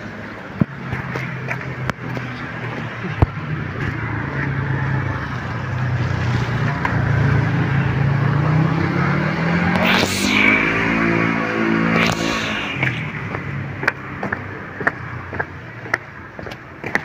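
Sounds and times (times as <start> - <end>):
short rushing noise: 9.8 - 13.4.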